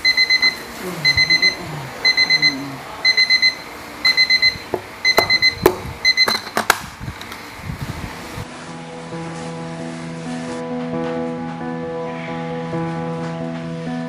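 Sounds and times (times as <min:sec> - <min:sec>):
electronic alarm beeping: 0:00.0 - 0:06.6.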